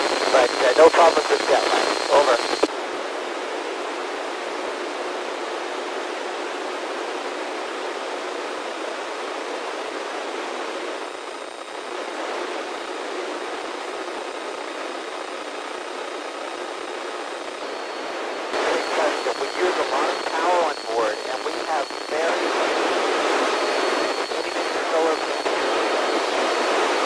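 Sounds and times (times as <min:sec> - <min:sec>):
radio static hiss: 0:00.0 - 0:02.8, 0:06.5 - 0:27.0.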